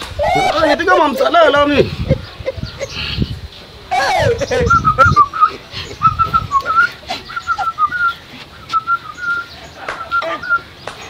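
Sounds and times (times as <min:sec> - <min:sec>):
person whistling a tune: 0:04.7 - 0:09.5.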